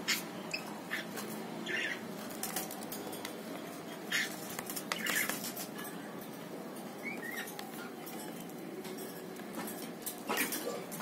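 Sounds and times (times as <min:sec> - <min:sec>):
bird chirp: 0:00.0 - 0:05.6, 0:06.9 - 0:07.6
wing flutters: 0:04.1 - 0:05.7.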